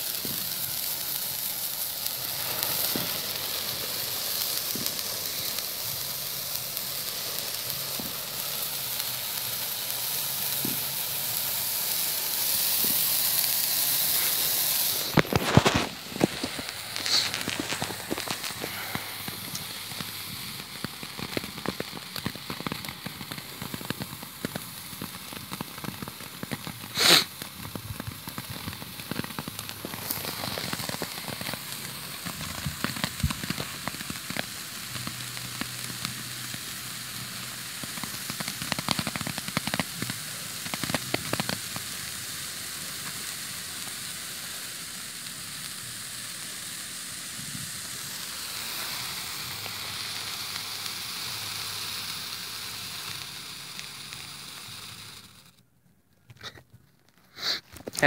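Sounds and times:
firework fountain hissing and crackling: 0.0s - 58.0s
loud sharp pop: 2.3s - 3.5s, 4.6s - 5.6s, 10.5s - 10.9s, 12.8s - 20.1s.

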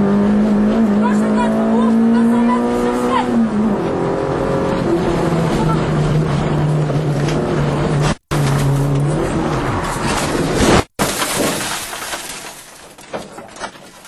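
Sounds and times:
scraping and crunching of crash: 9.8s - 14.0s
glass breaking: 10.7s - 14.0s.

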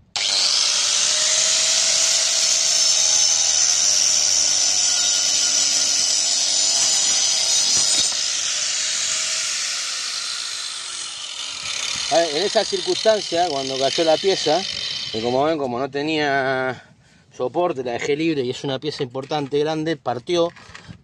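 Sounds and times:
angle grinder cutting wood: 0.0s - 15.5s.

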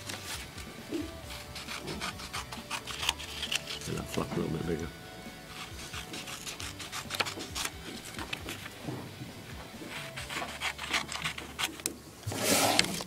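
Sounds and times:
paper rustling: 0.0s - 0.7s, 1.3s - 4.5s, 5.6s - 8.8s, 9.7s - 13.0s
scissors snipping paper: 1.3s - 4.6s, 5.5s - 8.8s, 9.8s - 12.0s.

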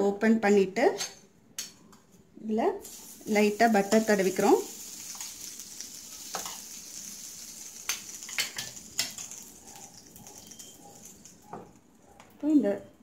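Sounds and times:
butter sizzling: 2.8s - 12.0s.

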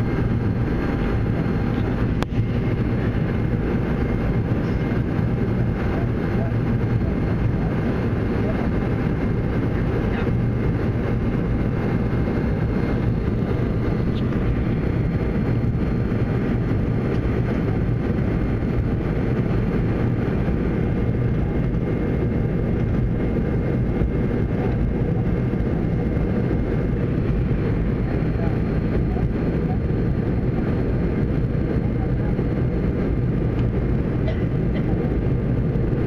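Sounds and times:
airliner cabin rumble: 0.0s - 36.0s.

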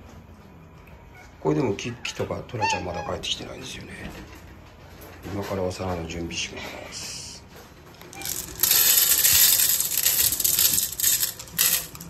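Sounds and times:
kibble rattling on metal plate: 8.0s - 12.0s.

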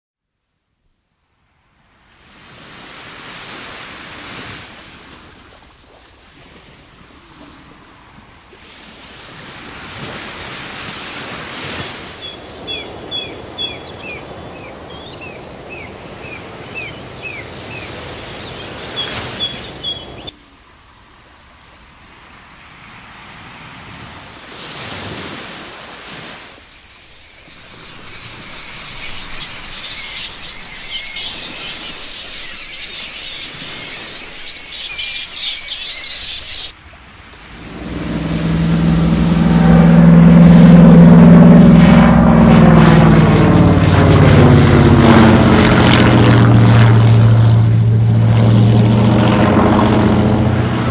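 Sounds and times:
waves washing on shore: 2.1s - 50.9s
birds chirping: 11.8s - 20.3s, 26.7s - 36.7s.

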